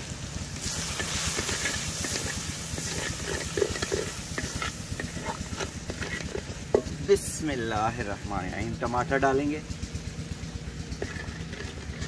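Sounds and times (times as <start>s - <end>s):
spices sizzling in hot oil: 0.0s - 7.8s, 9.8s - 12.0s.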